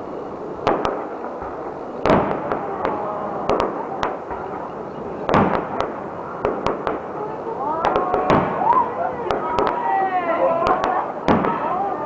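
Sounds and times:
firework crackle: 0.0 - 12.0
firework shells bursting: 0.6 - 9.9.

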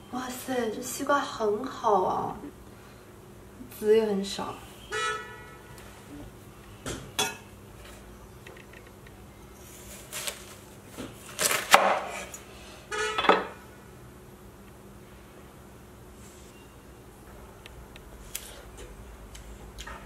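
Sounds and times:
knife crunching through melon rind: 11.2 - 12.4.

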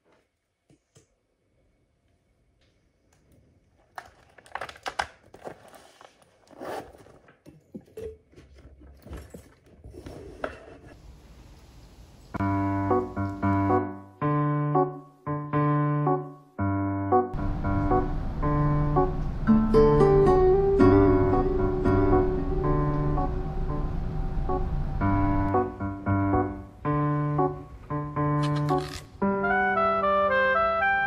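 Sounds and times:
rustling while packing a bag: 5.2 - 7.4
piano music: 12.4 - 31.0.

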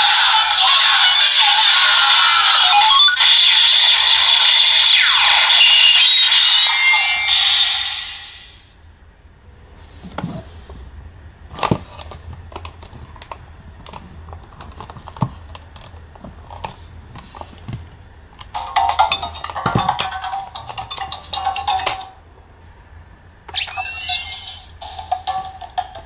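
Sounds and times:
toy electronic sound effects: 0.0 - 8.6, 18.5 - 22.2, 23.5 - 26.0
plastic toy clicks and knocks: 18.4 - 22.2, 24.8 - 26.0.

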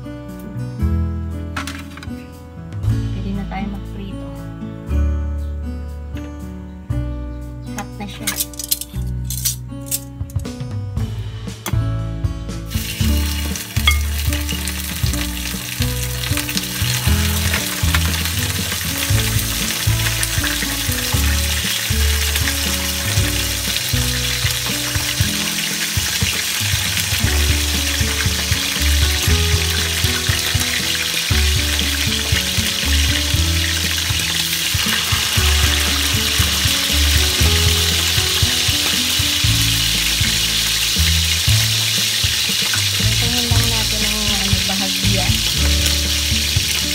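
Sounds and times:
fish sizzling in hot oil: 12.7 - 46.9.

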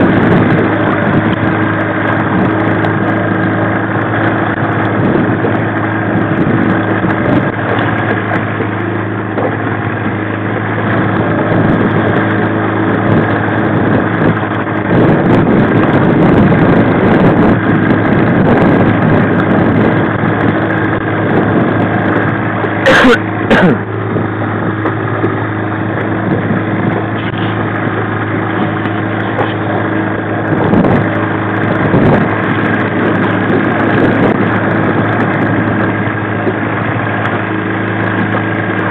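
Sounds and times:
outboard motor running: 0.0 - 38.9.

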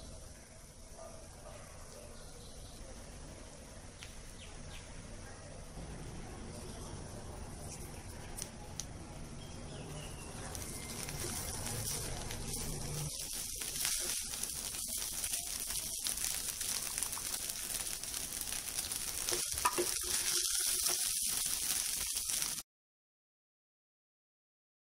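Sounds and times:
rice sizzling in an oiled pan: 9.9 - 22.6
wooden spatula scraping a pan: 19.1 - 22.4.

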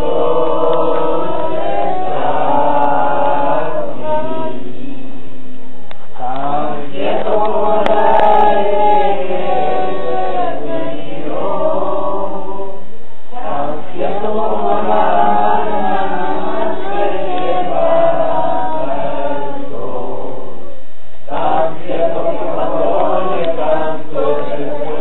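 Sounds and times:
group singing worship song: 0.0 - 25.0.

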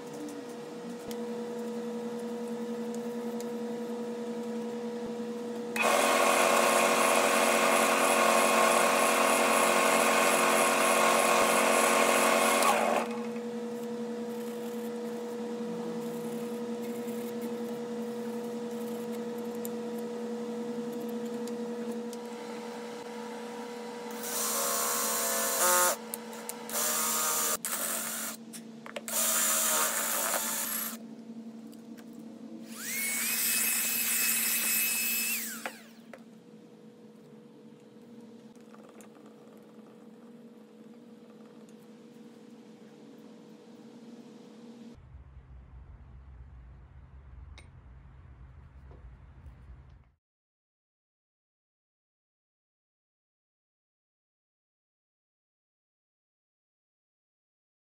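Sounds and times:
wood lathe humming: 5.7 - 20.0, 20.6 - 28.4, 32.6 - 36.0
cloth rubbing spinning bowl: 13.7 - 19.5.

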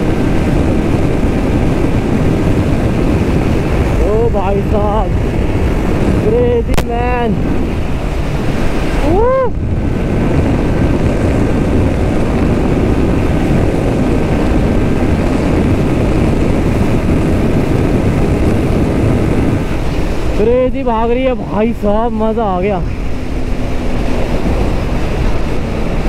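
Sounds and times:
motorcycle engine at high revs: 0.0 - 26.0
wind rushing over microphone: 0.0 - 26.0.

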